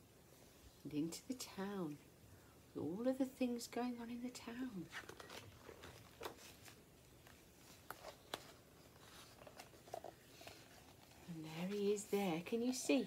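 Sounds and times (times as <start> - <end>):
book pages turning: 4.9 - 13.0.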